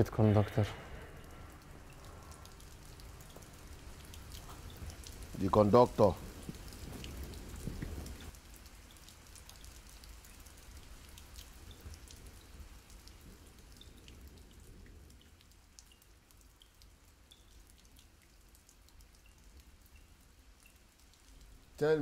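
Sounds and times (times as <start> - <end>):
rain drips and patter: 0.0 - 22.0.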